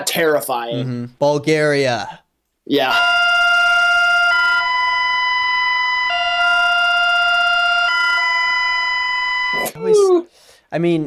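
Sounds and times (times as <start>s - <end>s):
two-tone electronic alarm: 2.9s - 9.8s.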